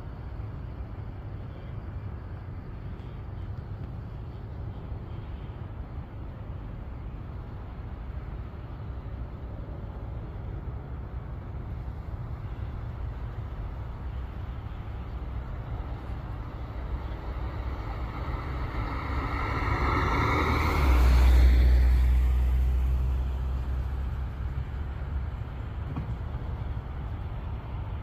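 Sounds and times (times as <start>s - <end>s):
low background rumble: 0.0s - 28.0s
car driving past: 16.6s - 24.3s.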